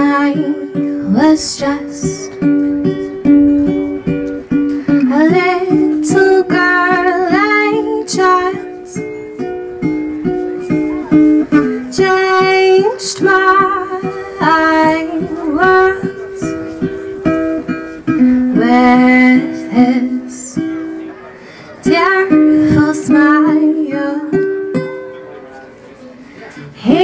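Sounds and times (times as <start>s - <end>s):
woman singing with vibrato: 0.0s - 4.1s, 4.9s - 9.2s, 11.2s - 20.6s, 21.8s - 24.5s, 26.8s - 27.0s
plucked ukulele: 0.0s - 25.8s.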